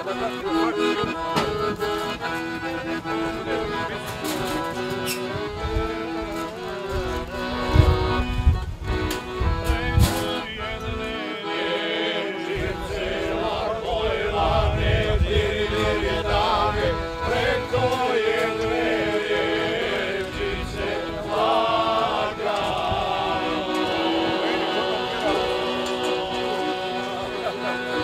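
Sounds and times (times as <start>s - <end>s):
instruments accompanying: 0.0s - 28.0s
men singing together: 9.7s - 28.0s.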